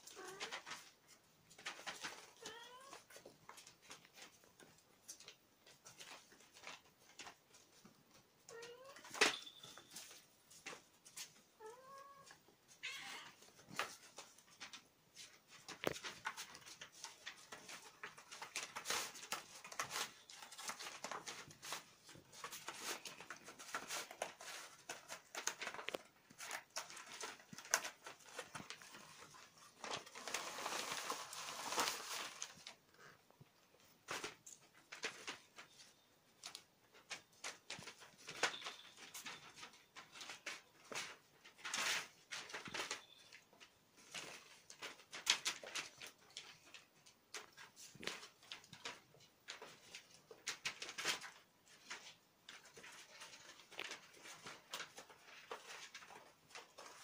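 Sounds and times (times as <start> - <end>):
paws rustling and scratching: 0.0 - 8.3, 13.4 - 57.0
kittens meowing: 11.6 - 13.4.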